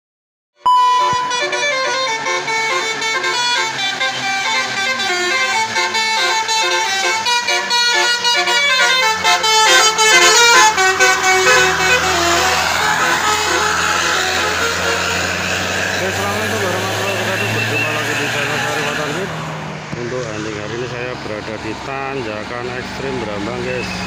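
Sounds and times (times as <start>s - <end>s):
bus air horn melody: 0.7s - 19.3s.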